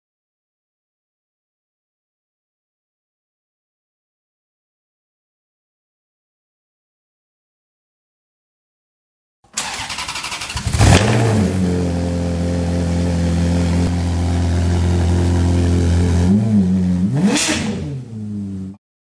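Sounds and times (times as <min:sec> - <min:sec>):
car engine cranking: 0:09.6 - 0:16.4
car engine idling and revving: 0:09.6 - 0:18.8.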